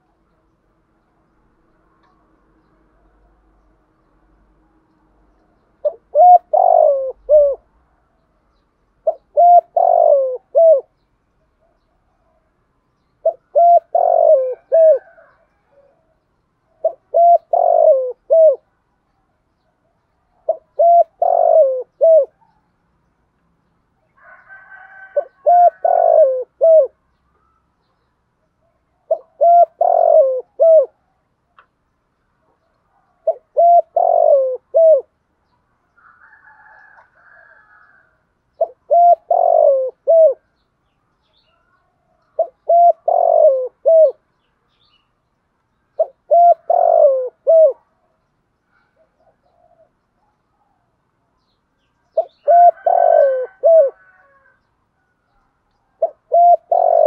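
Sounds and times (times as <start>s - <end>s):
dove cooing: 5.8s - 7.8s, 9.0s - 11.0s, 13.2s - 18.7s, 19.8s - 22.6s, 24.2s - 27.6s, 28.6s - 31.1s, 32.9s - 35.2s, 36.1s - 40.5s, 41.5s - 44.2s, 46.0s - 48.1s, 48.8s - 50.9s, 52.1s - 55.3s, 55.9s - 57.0s.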